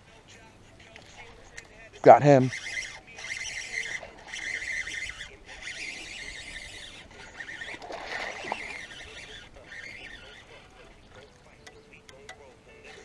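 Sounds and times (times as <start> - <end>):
rasping sound: 2.3 - 11.2
fish splashing on water: 3.0 - 9.3.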